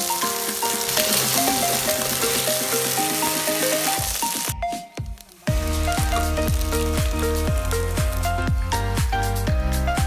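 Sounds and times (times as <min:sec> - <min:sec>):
potatoes sizzling in hot oil: 0:00.0 - 0:04.6, 0:05.4 - 0:08.5
light background music: 0:00.0 - 0:10.0.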